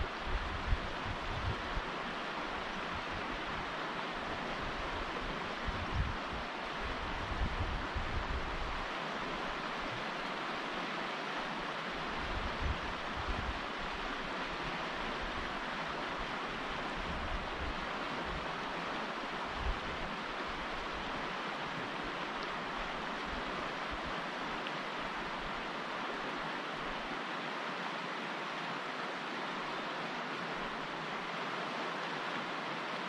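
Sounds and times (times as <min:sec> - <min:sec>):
wind on microphone: 0:00.0 - 0:10.1, 0:12.0 - 0:21.3.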